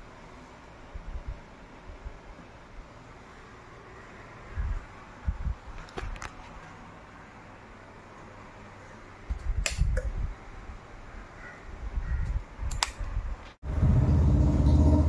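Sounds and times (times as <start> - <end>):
sharp clicks: 12.2 - 13.1
loud steady low rumble: 13.6 - 15.0.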